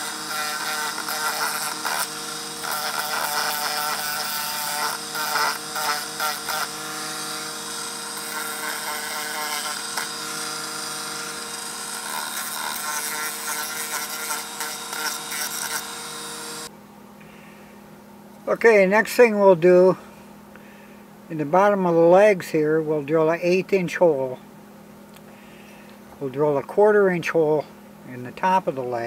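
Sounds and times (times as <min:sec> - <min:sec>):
rotary tool sanding whine: 0:00.0 - 0:16.7.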